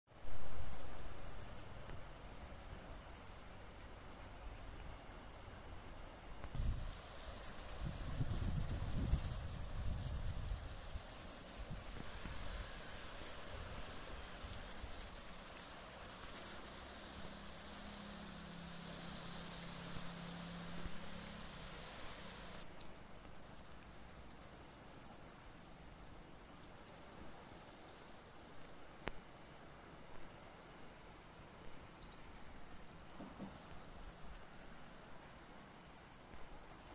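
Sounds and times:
insects chirring: 0:00.1 - 0:36.9
faint low hum: 0:00.2 - 0:25.7
wind buffeting microphone: 0:06.5 - 0:07.0, 0:07.8 - 0:11.0.

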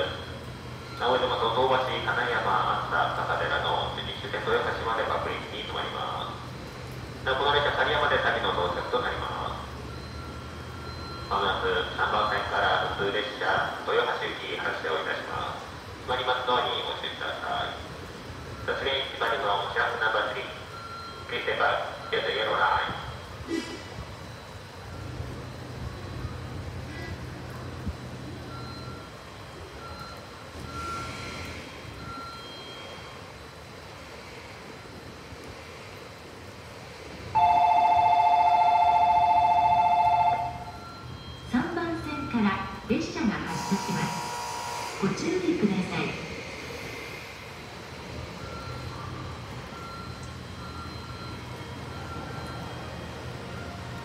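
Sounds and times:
electronic warning beeps: 0:00.0 - 0:06.0, 0:07.5 - 0:13.8, 0:16.8 - 0:23.4, 0:24.2 - 0:33.2, 0:37.4 - 0:54.0
railway station background noise: 0:00.0 - 0:54.0
short electronic beeps: 0:48.4 - 0:49.0.

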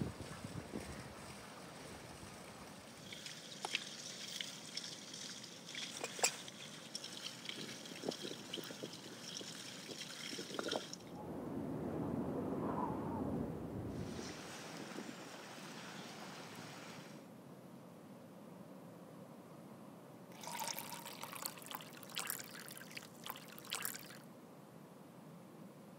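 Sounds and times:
water splashing into wooden barrel: 0:01.0 - 0:11.1, 0:20.3 - 0:24.2.

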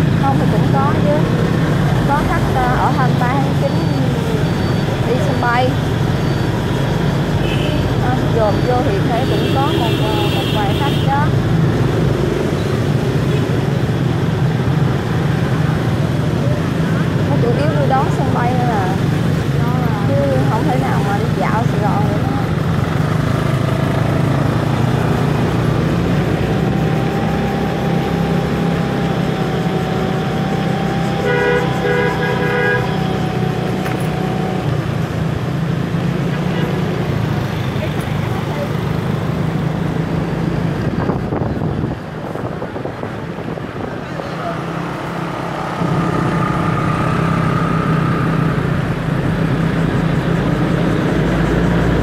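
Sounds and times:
hum of traffic: 0:00.0 - 0:52.0
scooter engine and road noise: 0:00.0 - 0:52.0
vehicle horn short honks: 0:31.2 - 0:33.0.

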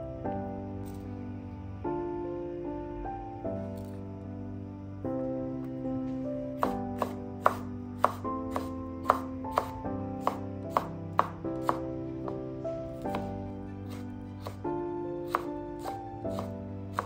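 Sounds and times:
background music: 0:00.0 - 0:17.0
knife knocking on wooden board: 0:06.6 - 0:12.4.

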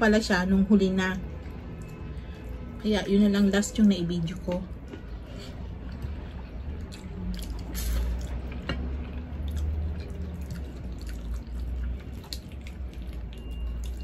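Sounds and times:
wet chewing and lip smacks: 0:04.6 - 0:14.0.

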